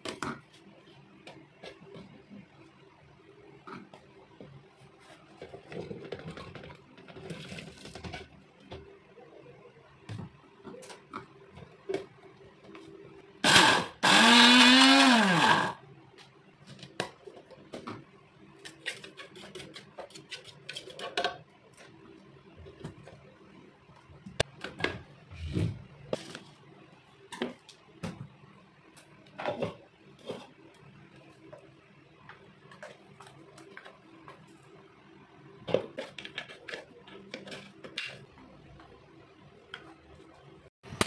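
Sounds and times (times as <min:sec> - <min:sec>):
blender motor running: 0:13.4 - 0:15.8.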